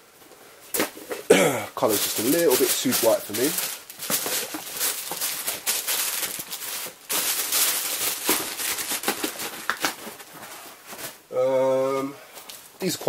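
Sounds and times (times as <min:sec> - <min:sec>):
cardboard box crackling and knocking: 0:01.8 - 0:11.2
tissue paper rustling and crinkling: 0:01.8 - 0:11.3.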